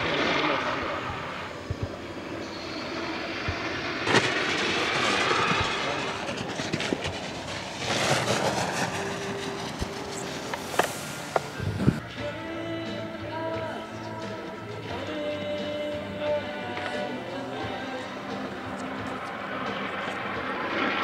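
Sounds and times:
skis sliding over plastic matting: 4.1s - 12.0s.

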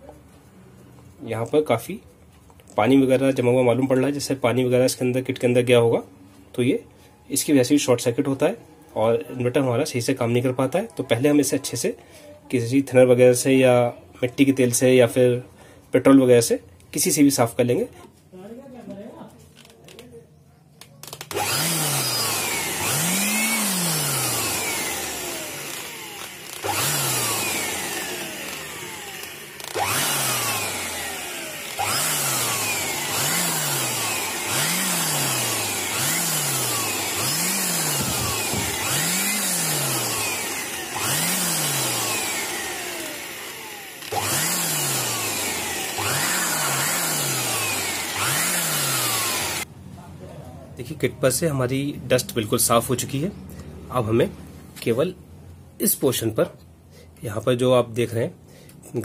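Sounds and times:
air blower rushing: 21.2s - 49.7s.

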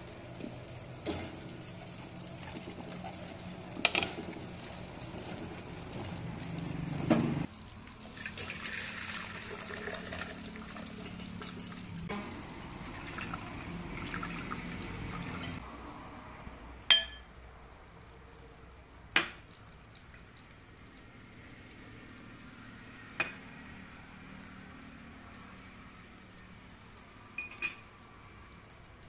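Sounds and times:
tap water running into strainer: 0.0s - 15.6s.

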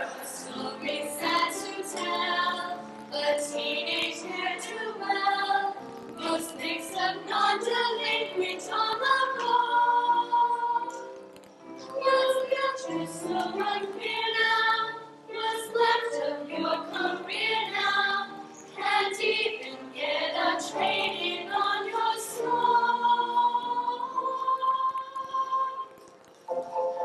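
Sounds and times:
girls singing together: 0.0s - 11.2s, 11.9s - 26.0s.

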